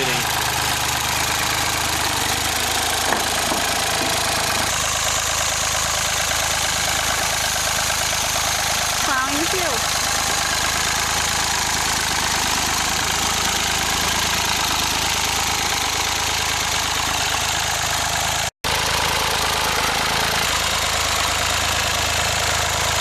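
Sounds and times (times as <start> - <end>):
tractor engine idling: 0.0 - 23.0.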